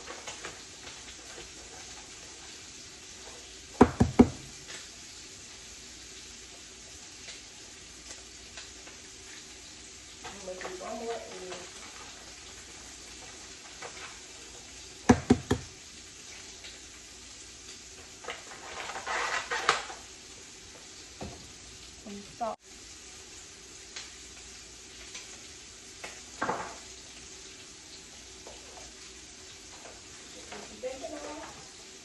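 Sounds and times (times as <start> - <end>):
kitchen clatter: 0.0 - 4.9, 10.2 - 16.4, 18.0 - 20.1, 26.0 - 27.0
eggs sizzling in a pan: 0.0 - 32.0
sharp knocks: 3.8 - 4.5, 15.1 - 15.7.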